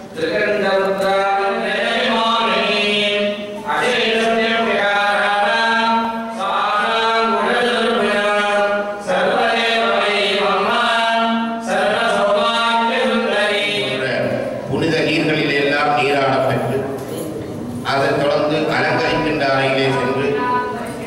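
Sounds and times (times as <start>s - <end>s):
priests chanting into microphones: 0.0s - 16.8s.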